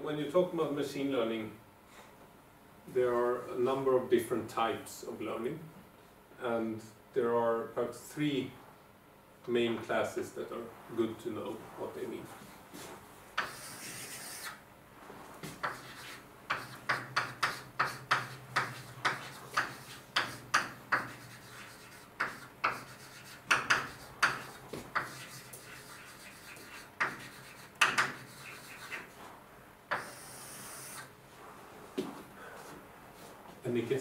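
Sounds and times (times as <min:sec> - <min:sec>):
writing strokes on board: 0:12.8 - 0:14.5, 0:15.4 - 0:29.3, 0:29.9 - 0:31.0.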